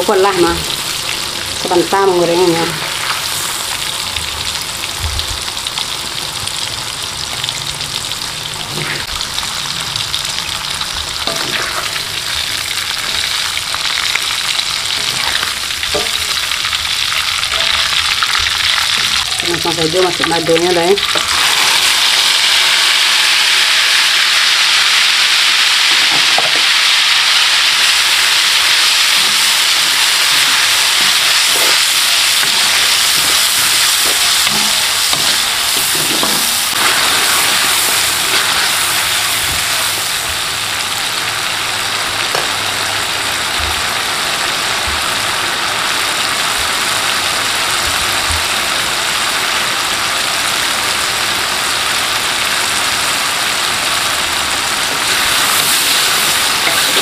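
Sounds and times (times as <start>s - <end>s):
paste sizzling in hot oil: 0.1s - 4.8s, 5.5s - 41.4s, 54.8s - 57.0s.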